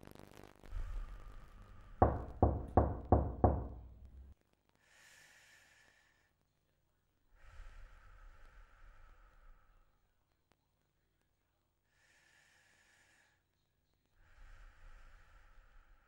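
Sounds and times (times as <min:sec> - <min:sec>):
sharp knocks: 0:02.0 - 0:04.3.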